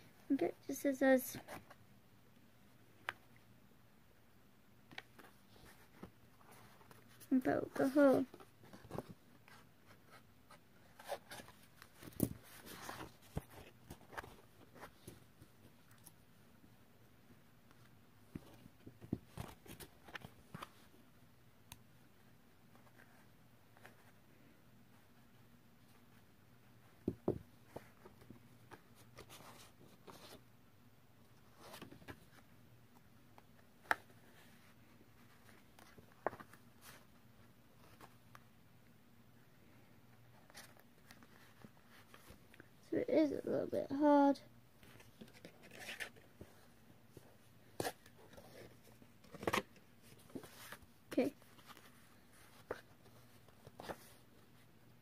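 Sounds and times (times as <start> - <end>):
card rustling and scraping: 4.9 - 15.2, 44.8 - 54.3
paper crinkling and rustling: 44.8 - 54.3.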